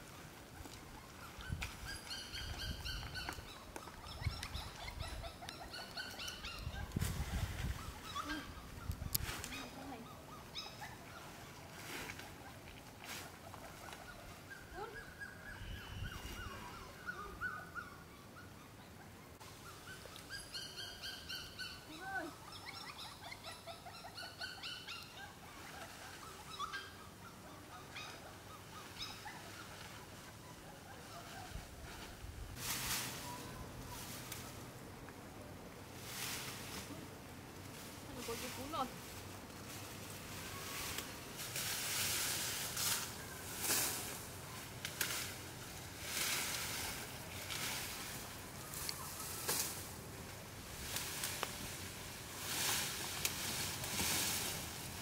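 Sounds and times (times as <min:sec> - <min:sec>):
puppies whimpering and squealing: 0:00.9 - 0:11.4, 0:14.0 - 0:18.9, 0:19.5 - 0:31.6.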